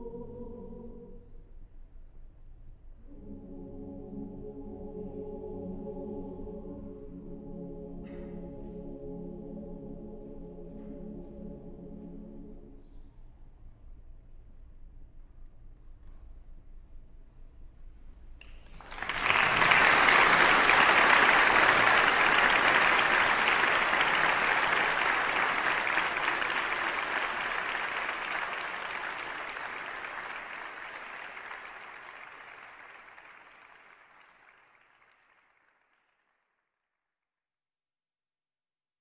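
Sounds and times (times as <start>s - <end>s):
audience applauding: 18.4s - 36.3s.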